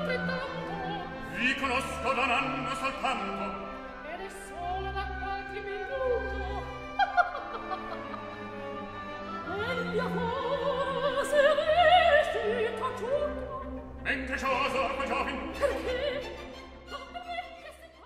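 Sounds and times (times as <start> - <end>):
operatic singing with orchestra: 0.0 - 18.0.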